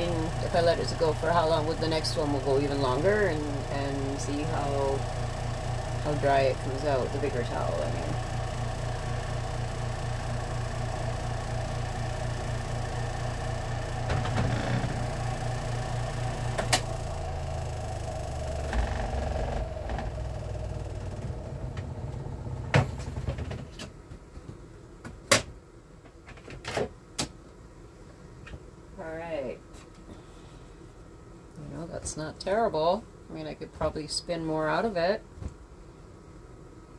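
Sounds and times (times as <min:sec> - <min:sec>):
spin-dryer motor humming: 0:00.0 - 0:24.0.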